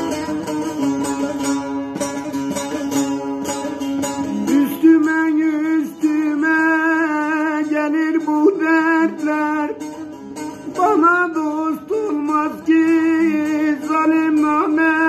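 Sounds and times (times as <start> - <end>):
long-necked lute strummed: 0.0 - 15.0.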